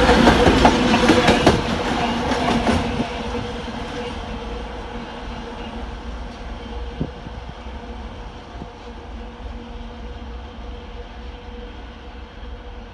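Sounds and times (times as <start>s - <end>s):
wheels clacking on rail joint: 0.0s - 4.2s
diesel locomotive engine droning: 0.0s - 12.9s.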